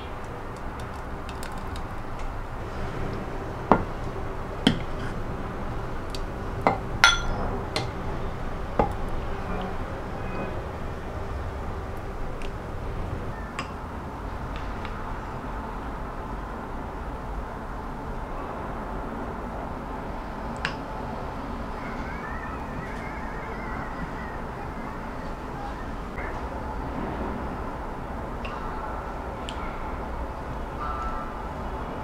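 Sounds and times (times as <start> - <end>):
background noise: 0.0 - 32.0
spoon clinking against bowl: 6.7 - 7.5.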